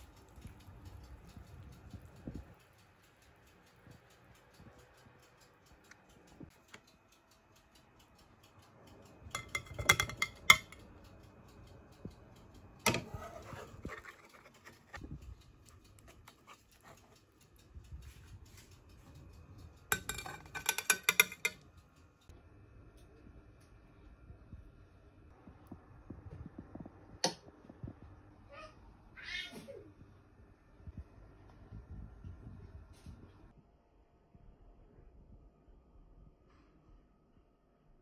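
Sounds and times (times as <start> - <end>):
metal utensil clinking on pan: 9.3 - 10.8, 19.9 - 21.6.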